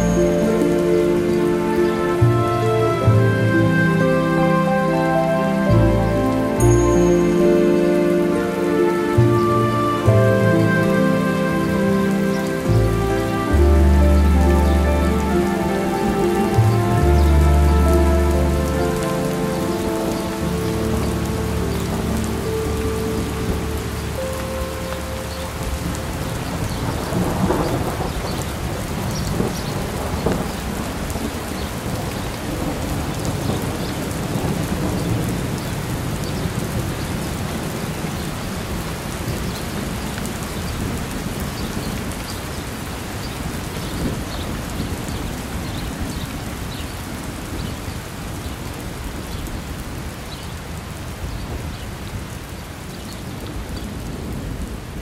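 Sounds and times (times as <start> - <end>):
steady rain: 0.0 - 55.0
thunder rumbling: 8.2 - 42.2.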